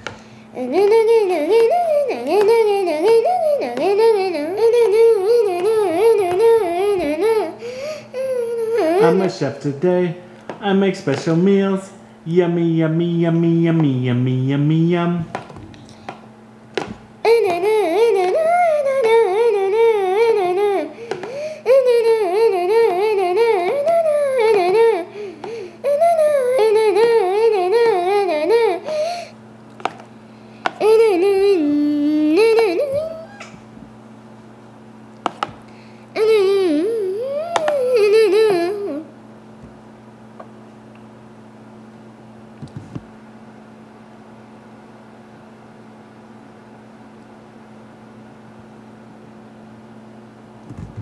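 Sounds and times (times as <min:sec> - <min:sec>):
appliance motor humming: 0:00.0 - 0:11.8, 0:13.2 - 0:34.0, 0:35.0 - 0:39.8.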